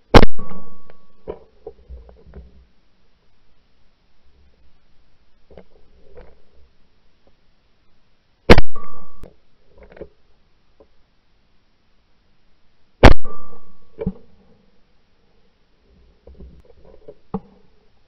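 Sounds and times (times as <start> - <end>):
shotgun shot with echo: 0.1 - 0.9, 8.5 - 9.2, 13.0 - 13.8.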